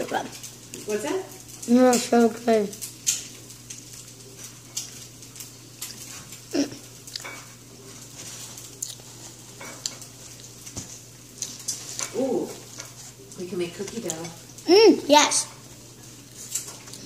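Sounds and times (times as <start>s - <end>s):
chewing: 2.7s - 13.4s, 16.0s - 17.0s
paper napkin rustling: 7.9s - 9.6s.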